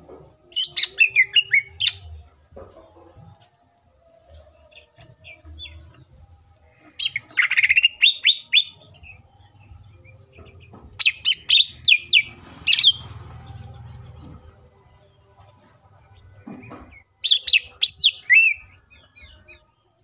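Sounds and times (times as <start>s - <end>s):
bird singing sharp descending notes: 0.5s - 2.2s, 6.9s - 19.8s.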